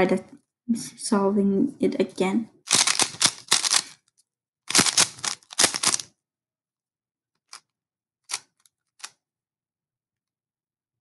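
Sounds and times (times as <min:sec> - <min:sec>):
plastic puzzle cube clicking turns: 0:02.7 - 0:04.0, 0:04.7 - 0:06.1, 0:08.3 - 0:09.2.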